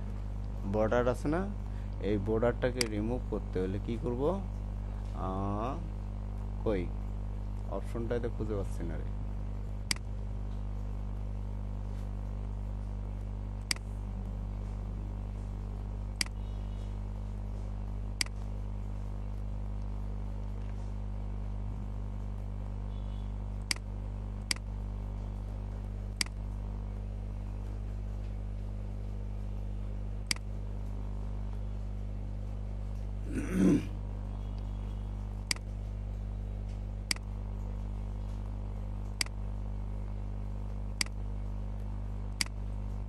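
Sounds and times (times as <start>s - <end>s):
steady low hum: 0.0s - 43.0s
computer mouse clicking: 42.4s - 42.6s.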